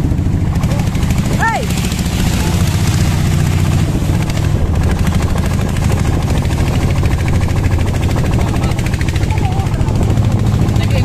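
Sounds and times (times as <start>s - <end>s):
boat motor running: 0.0s - 11.0s
water rushing along hull: 0.0s - 11.0s.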